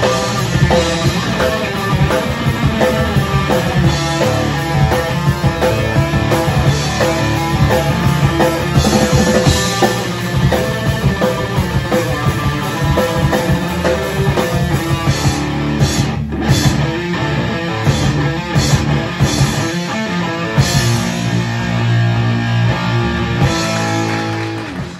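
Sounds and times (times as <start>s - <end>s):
drum kit with crashing cymbals: 0.0s - 16.9s
distorted electric guitar riffing: 0.0s - 24.9s.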